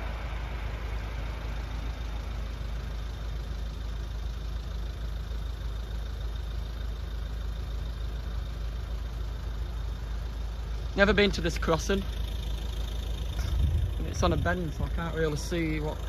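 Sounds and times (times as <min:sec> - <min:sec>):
vehicles idling low rumble: 0:00.0 - 0:16.0.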